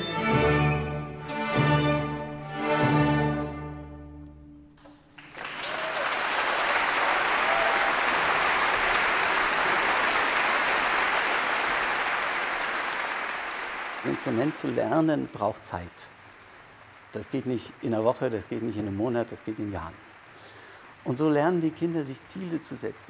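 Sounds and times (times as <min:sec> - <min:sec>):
audience applause: 0:05.0 - 0:23.0.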